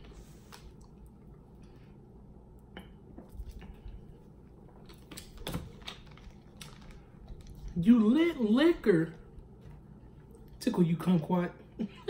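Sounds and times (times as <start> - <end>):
person chewing food: 0.0 - 7.8.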